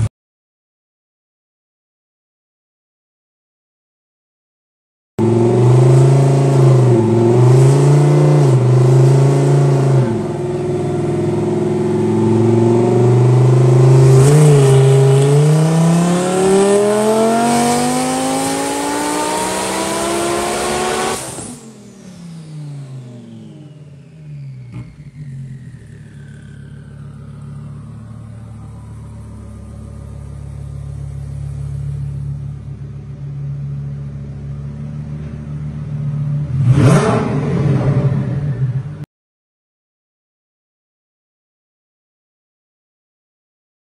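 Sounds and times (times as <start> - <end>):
car engine revving on dyno: 5.2 - 25.9, 36.4 - 39.0.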